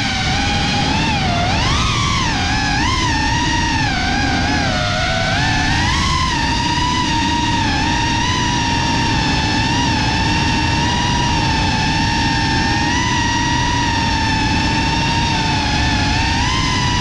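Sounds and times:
drone motors whining: 0:00.0 - 0:17.0
wind rush: 0:00.0 - 0:17.0.

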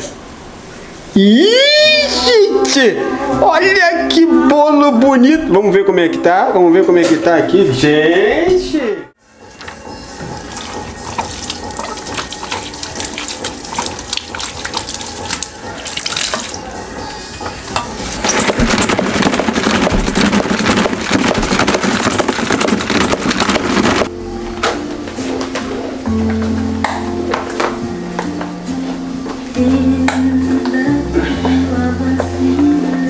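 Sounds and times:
mop knocking against sink: 0:10.2 - 0:16.6, 0:17.8 - 0:24.1
spin mop whirling in bucket: 0:10.3 - 0:16.7, 0:18.1 - 0:24.1
tap water running into sink: 0:10.4 - 0:16.6.

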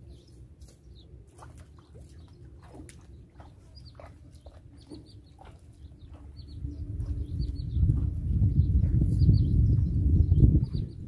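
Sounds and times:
small birds chirping: 0:00.0 - 0:11.0
low steady rumble: 0:02.2 - 0:11.0.

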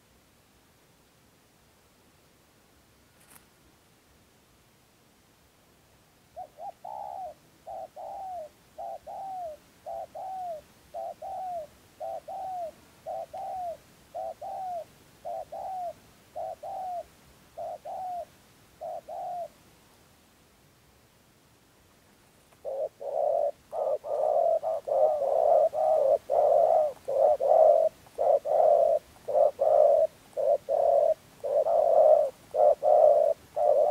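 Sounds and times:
dove cooing: 0:06.4 - 0:19.6, 0:22.5 - 0:33.9.

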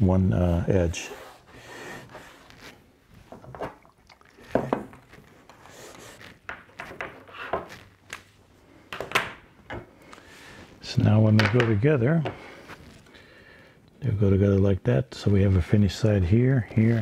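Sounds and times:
cloth rubbing on board: 0:00.4 - 0:03.4, 0:04.4 - 0:08.5.

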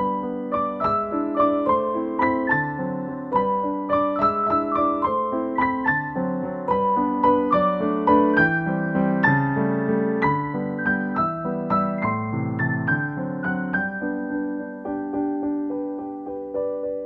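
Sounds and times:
gentle piano melody: 0:00.0 - 0:17.0.

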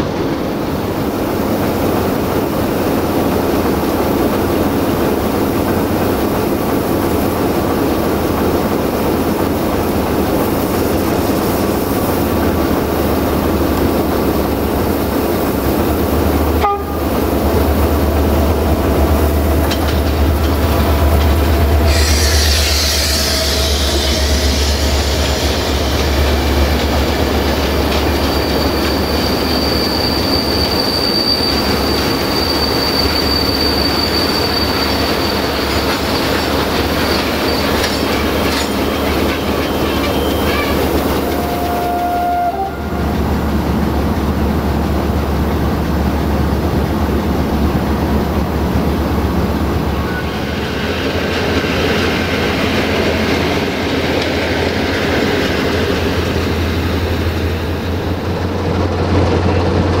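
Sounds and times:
train wheels clickety-clack: 0:00.0 - 0:42.0, 0:43.0 - 1:00.0
diesel locomotive hum: 0:00.0 - 1:00.0
diesel train passing rumble: 0:00.0 - 1:00.0
wheel squeal: 0:21.6 - 0:42.6.

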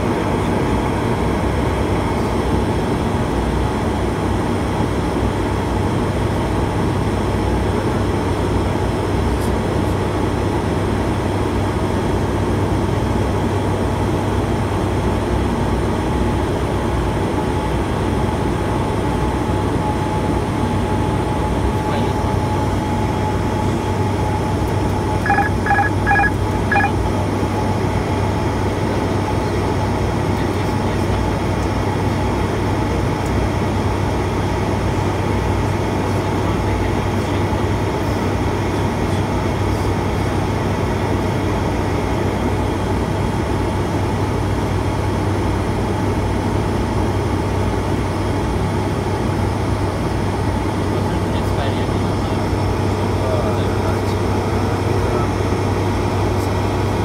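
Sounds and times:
turboprop engines droning: 0:00.0 - 0:57.0
short electronic beeps: 0:25.2 - 0:27.0.

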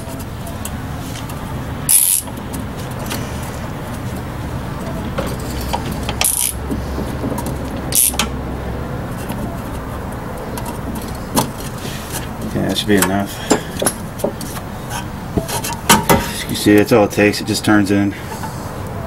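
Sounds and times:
steady low rumble: 0:00.0 - 0:16.5
metal tool scraping brake piston: 0:01.9 - 0:02.3, 0:04.9 - 0:06.7, 0:07.9 - 0:08.3.

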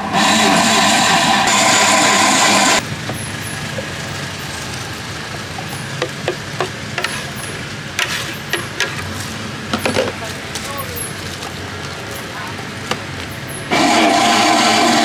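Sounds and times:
electric blender running: 0:00.0 - 0:02.8, 0:13.7 - 0:15.0
street background noise: 0:00.0 - 0:15.0.

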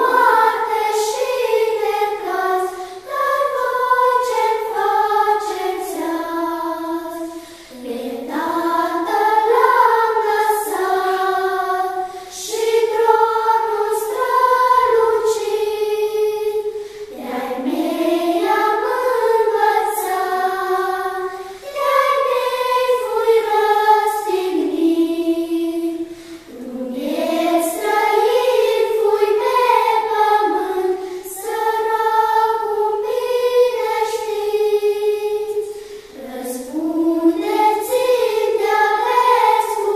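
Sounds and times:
girls choir singing in unison: 0:00.0 - 0:39.9.

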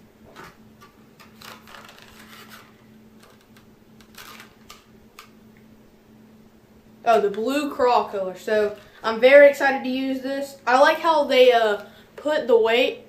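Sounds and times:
steady low hum: 0:00.0 - 0:13.0
plastic packaging clicks and rustles: 0:00.4 - 0:05.3.

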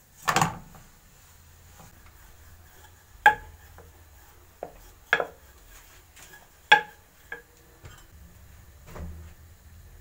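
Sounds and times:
rolling pin knocking on countertop: 0:03.2 - 0:04.0, 0:04.6 - 0:08.0.

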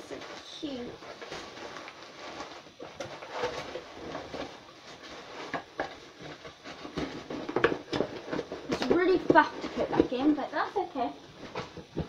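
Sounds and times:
packaging rustling and crinkling: 0:00.0 - 0:12.0
items knocking in cardboard box: 0:02.6 - 0:10.4, 0:11.4 - 0:12.0.

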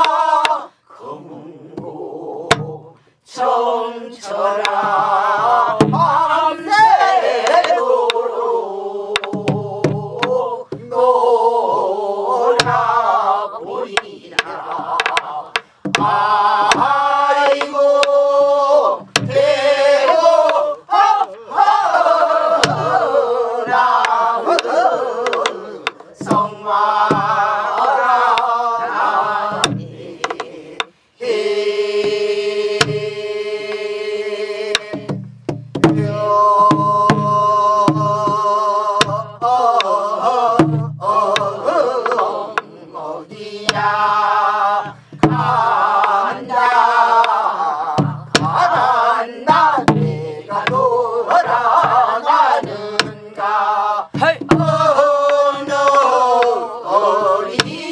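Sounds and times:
group singing folk song: 0:00.0 - 0:57.9
barrel drum strokes: 0:04.6 - 0:08.2, 0:19.0 - 0:20.6, 0:22.6 - 0:28.4, 0:29.5 - 0:30.5, 0:32.8 - 0:33.2, 0:34.7 - 0:42.7, 0:43.6 - 0:53.5, 0:54.1 - 0:56.6.

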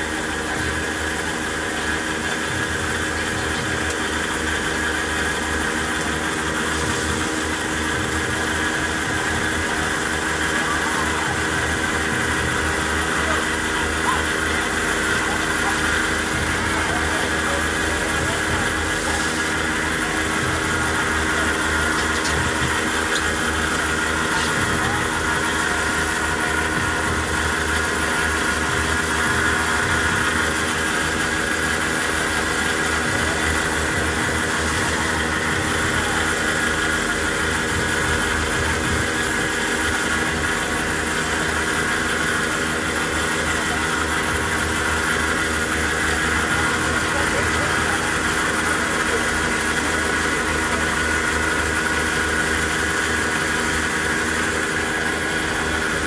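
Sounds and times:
cotton candy machine humming: 0:00.0 - 0:56.0.

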